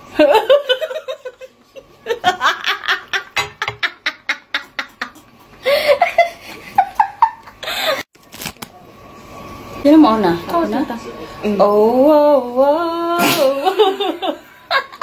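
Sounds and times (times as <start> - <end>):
women laughing: 0.2 - 8.1, 13.5 - 15.0.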